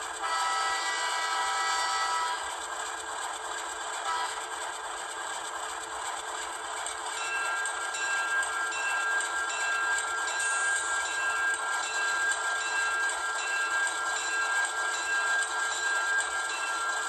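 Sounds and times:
steady high tones: 0:07.2 - 0:17.0.

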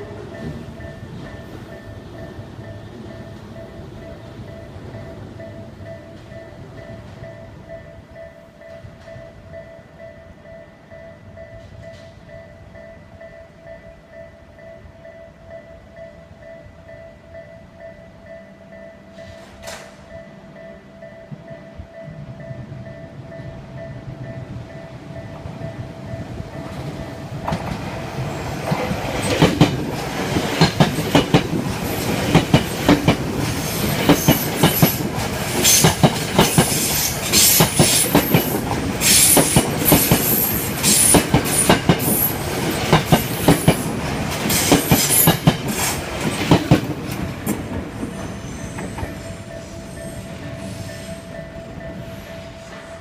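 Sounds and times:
railroad crossing bell ringing: 0:00.0 - 0:53.0
train rumble: 0:00.0 - 0:53.0
train wheels clacking over joints: 0:26.6 - 0:51.4.

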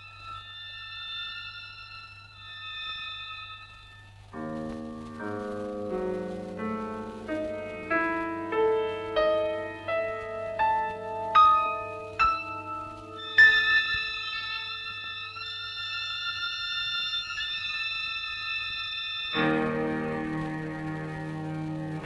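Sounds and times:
piano notes: 0:04.3 - 0:15.5, 0:19.3 - 0:22.0.

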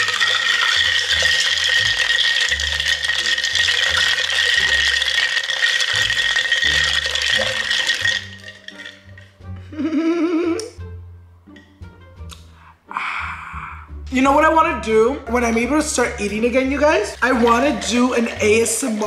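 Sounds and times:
ice cubes rattling in a glass jar: 0:00.0 - 0:09.3, 0:16.2 - 0:19.0.

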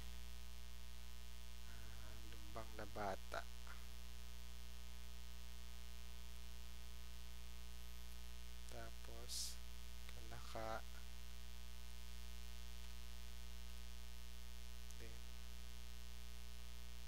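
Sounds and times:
electrical mains hum: 0:00.0 - 0:17.0.

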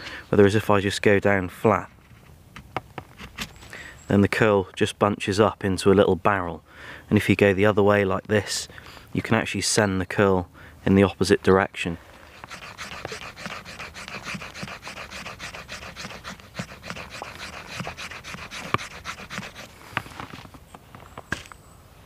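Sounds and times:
knife scraping wood: 0:12.2 - 0:20.4.

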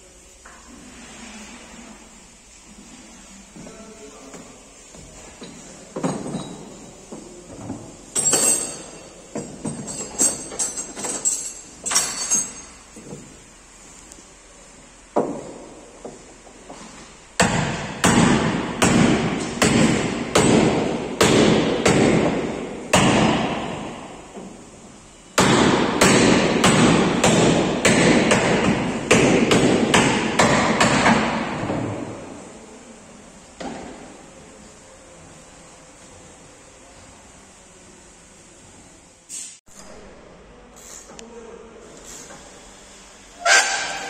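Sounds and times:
light metal clinks: 0:08.2 - 0:13.0
hammer blows on sheet metal: 0:17.4 - 0:24.3, 0:25.4 - 0:32.1.

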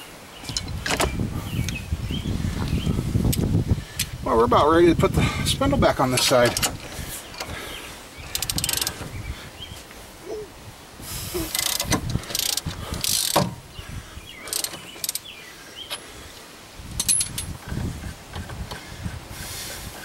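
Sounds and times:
ratchet clicking: 0:08.3 - 0:09.0, 0:11.5 - 0:13.5, 0:14.5 - 0:15.2.

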